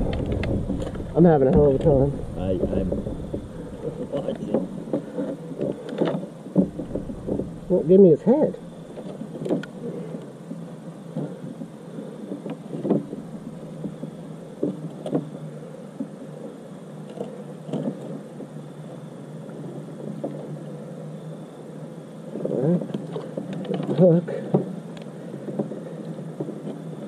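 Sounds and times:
gear knocking and rustling: 0.0 - 10.2
steady low background noise: 0.0 - 27.0.

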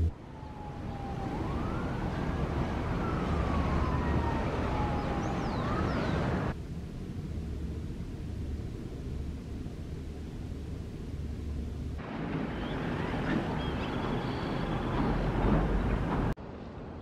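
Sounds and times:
distant siren wailing: 0.0 - 6.6, 12.0 - 16.2.

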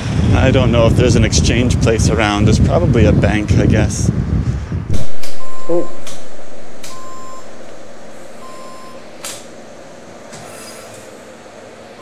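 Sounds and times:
sharp click: 4.9 - 5.4, 6.0 - 7.0, 9.2 - 9.5
short electronic beeps: 5.0 - 6.1, 6.9 - 7.6, 8.4 - 9.0.

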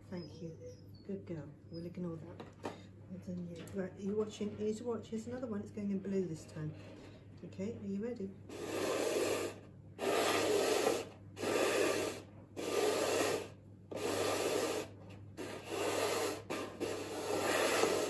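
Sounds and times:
plastic cones scraping on tiled floor: 8.5 - 18.0.

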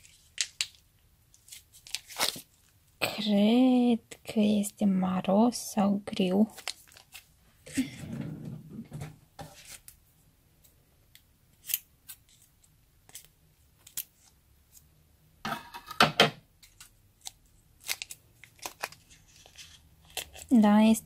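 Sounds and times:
plastic crinkling and tearing: 0.0 - 2.7, 6.5 - 7.3, 16.7 - 20.6.

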